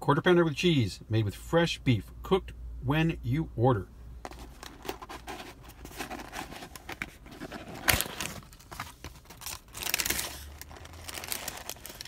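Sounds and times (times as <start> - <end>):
paper packaging crinkling: 4.3 - 12.0.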